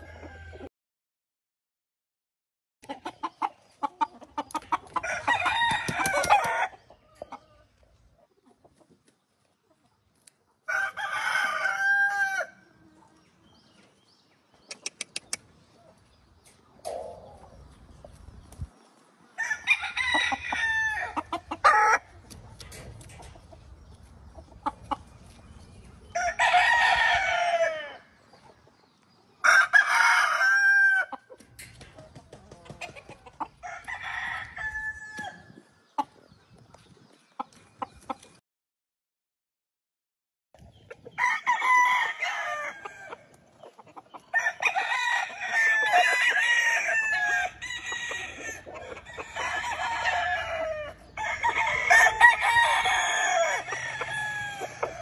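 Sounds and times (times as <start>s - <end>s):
roosters crowing: 0.0s - 0.7s, 4.8s - 7.5s, 10.6s - 12.8s, 19.4s - 22.3s, 26.1s - 28.2s, 29.4s - 31.7s, 32.5s - 35.5s, 41.2s - 43.4s, 44.1s - 55.0s
chickens clucking: 2.8s - 38.4s, 40.6s - 55.0s.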